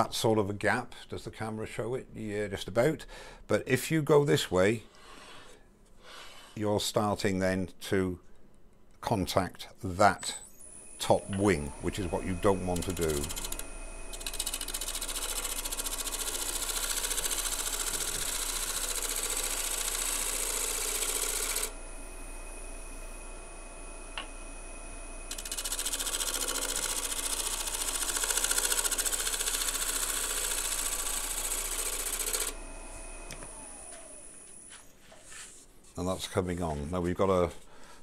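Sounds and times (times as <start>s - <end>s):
lathe running: 10.8s - 34.7s
gouge cutting wood on a lathe: 12.1s - 21.7s, 25.3s - 32.6s.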